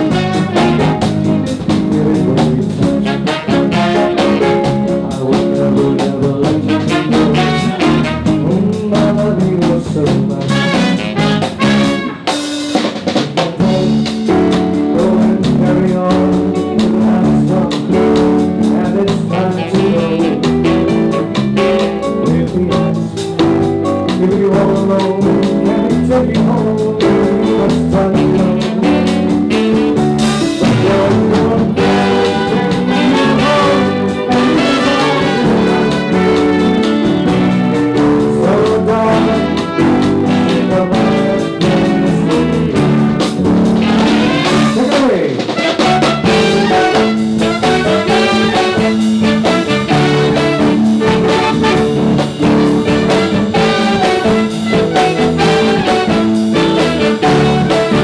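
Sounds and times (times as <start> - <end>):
brass-like keyboard melody: 0.0 - 58.0
keyboard chords and beat: 0.0 - 58.0.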